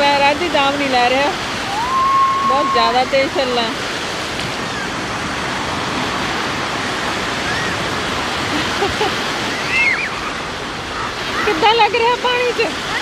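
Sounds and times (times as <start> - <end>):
heavy surf breaking on shore: 0.0 - 13.0.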